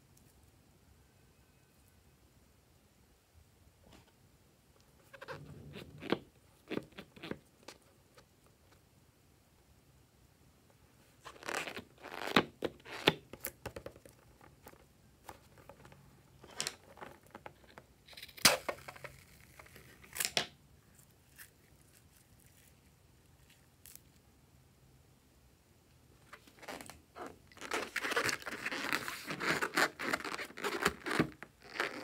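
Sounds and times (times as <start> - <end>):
balloon crinkling: 11.2 - 24.0, 26.2 - 32.0.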